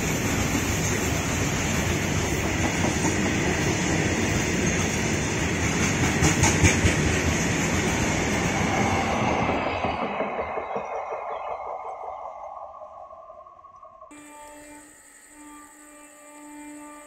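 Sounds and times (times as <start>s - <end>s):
clickety-clack over rail joints: 0.0s - 12.1s
freight train wheels rumbling: 0.0s - 13.5s.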